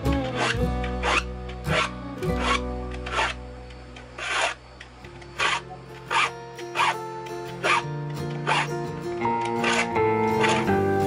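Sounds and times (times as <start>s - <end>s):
file rasping on saw teeth: 0.3s - 3.4s, 4.2s - 4.6s, 5.4s - 7.0s, 7.6s - 8.8s, 9.6s - 10.8s.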